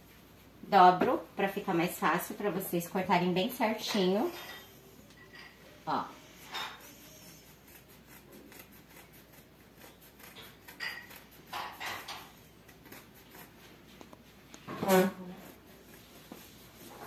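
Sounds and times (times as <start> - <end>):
scissors cutting towel: 6.7 - 14.2.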